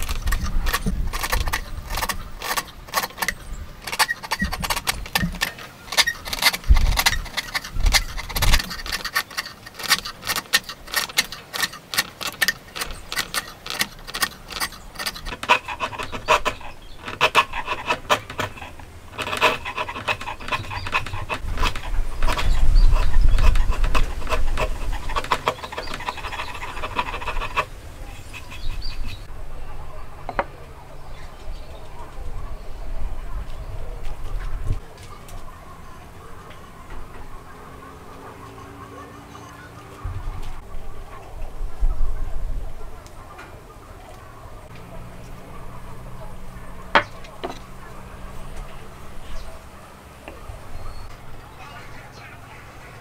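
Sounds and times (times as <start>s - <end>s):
chisel paring wood: 0.0s - 29.2s, 46.9s - 48.3s.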